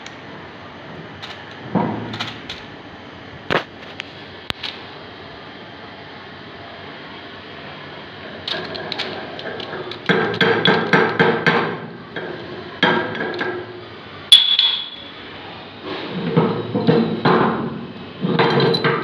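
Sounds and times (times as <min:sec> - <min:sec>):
sharp ringing metal clang: 0:14.3 - 0:15.2
metal knocking and clanking: 0:16.2 - 0:19.0.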